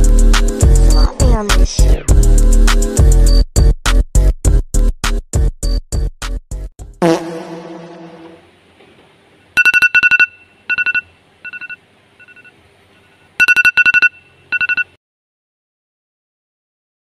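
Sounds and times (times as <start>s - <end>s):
tablet alarm beeping: 9.6s - 12.5s, 13.4s - 15.0s.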